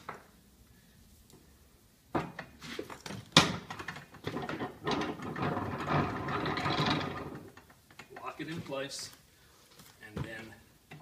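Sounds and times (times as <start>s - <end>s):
metal rattling: 3.4s - 7.7s.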